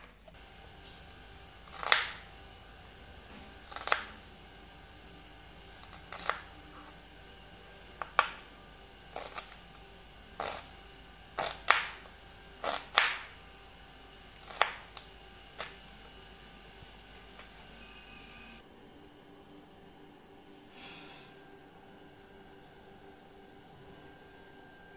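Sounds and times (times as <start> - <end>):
knife chopping on plastic board: 1.7 - 2.2, 8.0 - 8.4, 11.4 - 13.3, 14.4 - 15.8.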